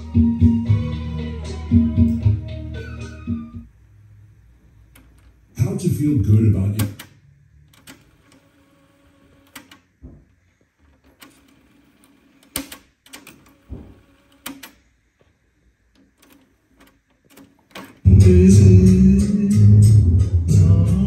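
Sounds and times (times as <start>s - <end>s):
cassette deck keys clicking: 6.8s - 7.1s.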